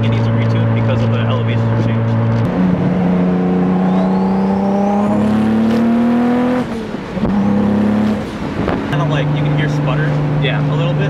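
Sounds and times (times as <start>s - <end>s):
car engine revving under throttle: 0.0s - 11.0s
turbo whistle: 3.7s - 5.0s.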